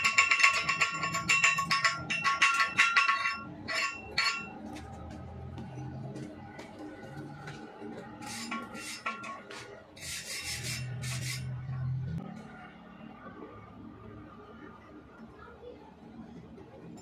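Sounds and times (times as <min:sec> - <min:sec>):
welding rod scraping steel plate: 0:00.0 - 0:04.8, 0:07.5 - 0:11.9.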